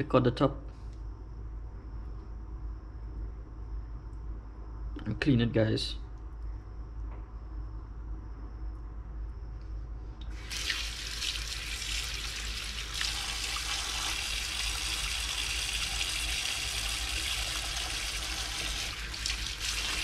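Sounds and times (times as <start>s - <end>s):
tap water running into sink: 10.3s - 20.0s.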